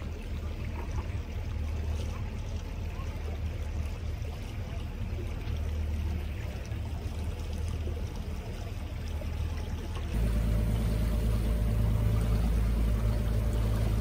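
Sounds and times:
low steady hum: 0:00.0 - 0:14.0
water lapping against boat hull: 0:00.0 - 0:14.0
loud low rumble: 0:10.2 - 0:14.0.

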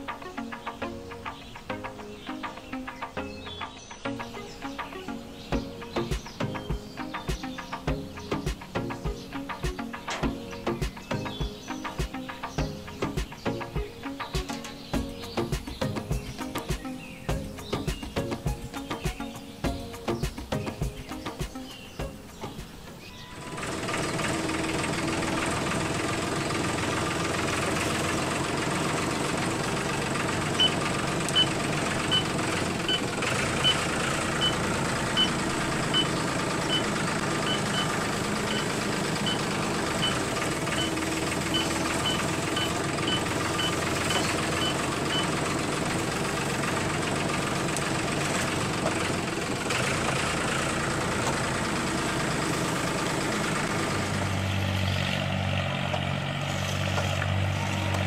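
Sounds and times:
small tractor engine running: 0:05.6 - 0:18.6, 0:23.4 - 0:58.0
high reversing beeps: 0:30.5 - 0:45.5.

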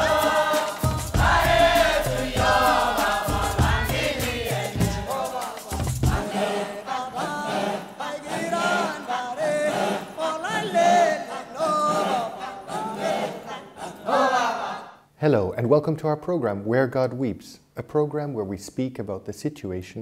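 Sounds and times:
choral chanting theme music: 0:00.0 - 0:15.1.

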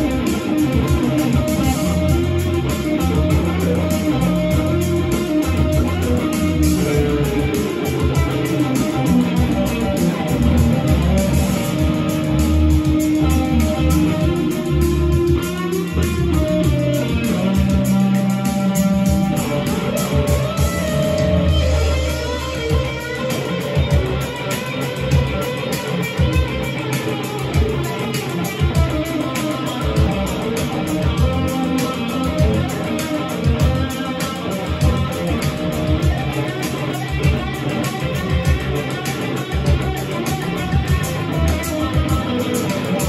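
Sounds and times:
electric guitar playing: 0:00.0 - 0:43.0.

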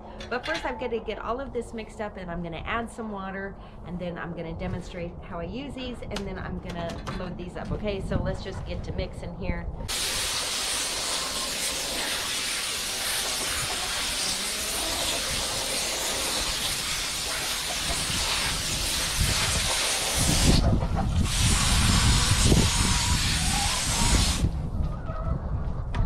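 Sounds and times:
hose nozzle spray hissing: 0:09.9 - 0:20.6, 0:21.2 - 0:24.5.

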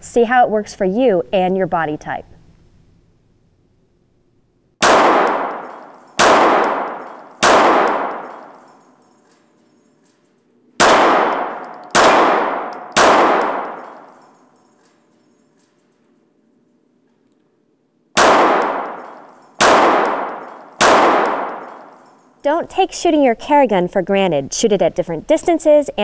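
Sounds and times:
pistol shots echoing indoors: 0:04.8 - 0:22.4.

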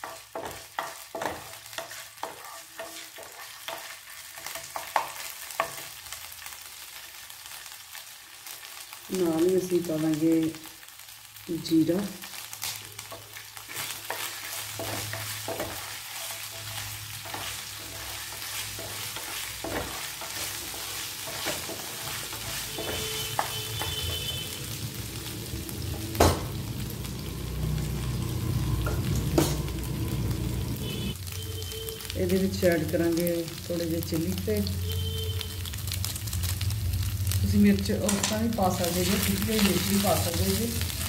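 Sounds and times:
wooden spatula stirring: 0:00.0 - 0:05.8, 0:13.1 - 0:24.4
seeds sizzling in hot oil: 0:00.0 - 0:41.0.

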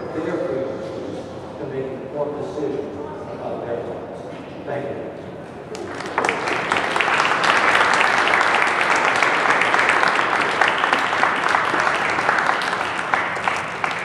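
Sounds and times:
audience applauding: 0:05.7 - 0:14.0.

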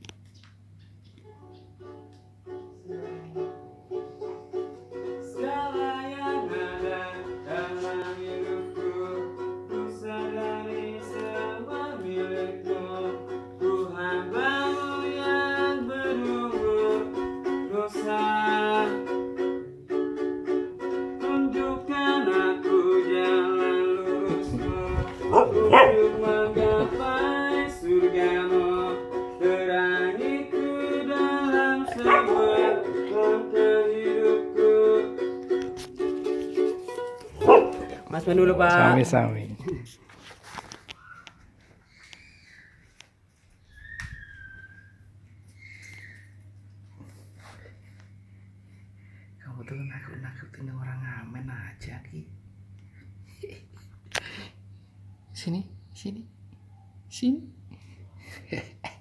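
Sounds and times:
ukulele strumming: 0:01.8 - 0:39.3
person singing: 0:02.5 - 0:04.5, 0:05.1 - 0:19.6, 0:20.8 - 0:39.2
dog barking: 0:25.3 - 0:26.1, 0:31.9 - 0:32.8, 0:37.4 - 0:38.0.

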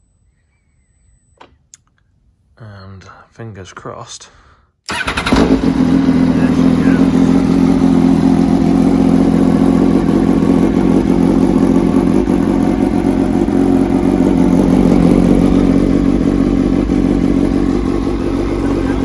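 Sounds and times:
motorcycle engine idling: 0:04.9 - 0:19.0.

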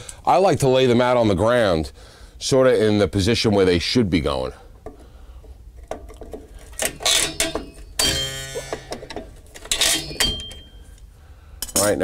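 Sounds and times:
metallic clicks and scrapes: 0:05.9 - 0:10.6
short metallic ring: 0:07.1 - 0:08.8, 0:09.7 - 0:10.9.

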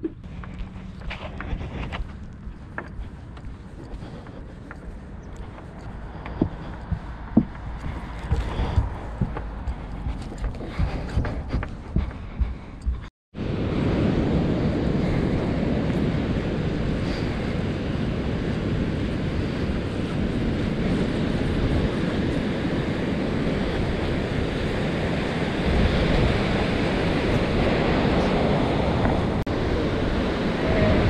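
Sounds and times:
wind buffeting microphone: 0:00.0 - 0:31.0
ocean surf rushing: 0:13.4 - 0:31.0.

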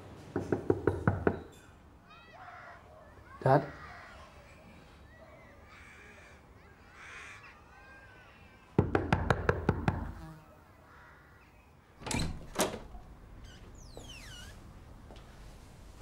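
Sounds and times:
faint crow caws: 0:02.1 - 0:04.4, 0:05.3 - 0:08.8, 0:10.5 - 0:12.0.

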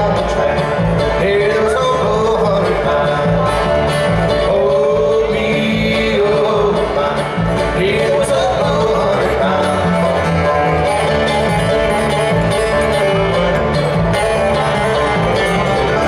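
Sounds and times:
bluegrass band playing: 0:00.0 - 0:16.0
held melody bending in pitch: 0:09.0 - 0:16.0.

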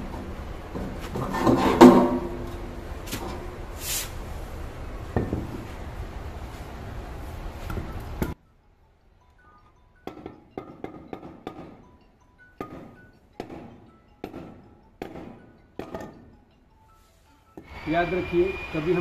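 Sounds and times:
ringing metal clank: 0:00.7 - 0:03.7, 0:09.5 - 0:19.0
metal casing scraping and rubbing: 0:00.7 - 0:04.2.

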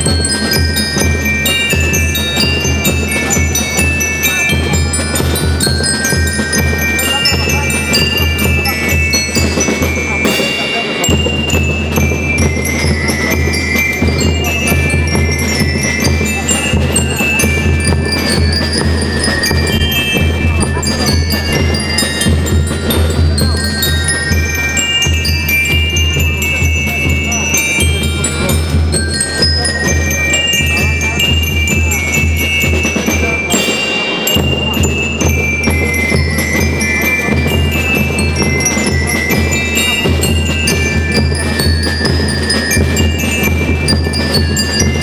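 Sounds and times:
bell lyres melody: 0:00.0 - 0:45.0
drum kit beating: 0:00.0 - 0:45.0
snare drums: 0:00.0 - 0:45.0
bass drum: 0:11.1 - 0:30.1.

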